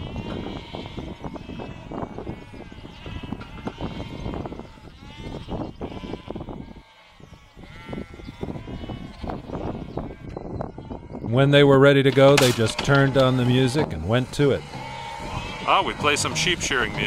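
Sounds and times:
sheep bleating: 0.0 - 17.0.

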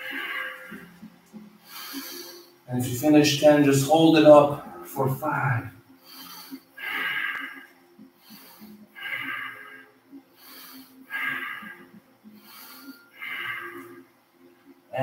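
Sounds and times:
man breathing heavily: 0.0 - 2.7, 4.5 - 14.1.

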